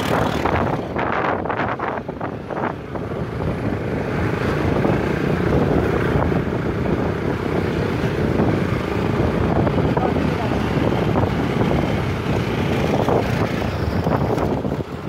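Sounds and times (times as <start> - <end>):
motorcycle on gravel road: 0.0 - 2.0, 3.2 - 15.0
wind buffeting microphone: 0.0 - 15.0.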